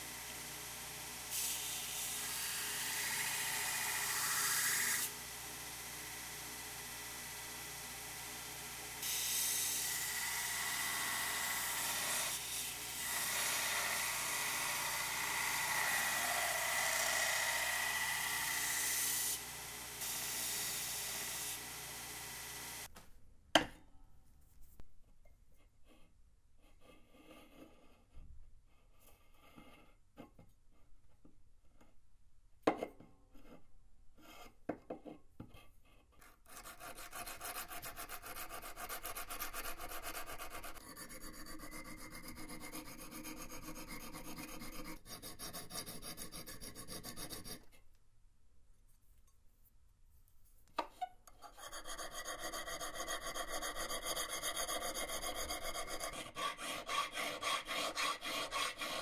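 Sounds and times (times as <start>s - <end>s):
metal file rasping on steel: 25.8s - 28.1s, 35.6s - 47.8s, 51.0s - 59.0s.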